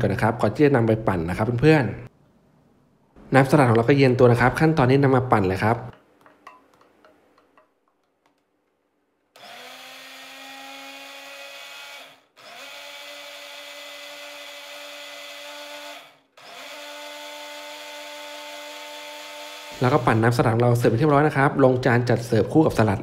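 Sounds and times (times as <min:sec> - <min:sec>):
electric blender running: 0:09.4 - 0:20.6.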